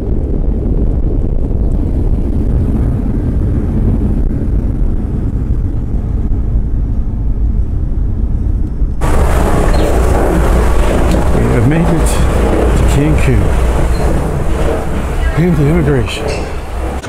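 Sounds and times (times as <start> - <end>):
jet engine cabin rumble: 0.0 - 17.0
hissy rush of noise: 9.0 - 17.0.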